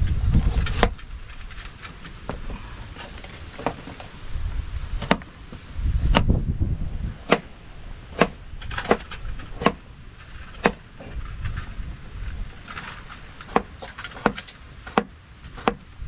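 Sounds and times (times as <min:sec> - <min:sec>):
low rumble: 0:05.6 - 0:13.4.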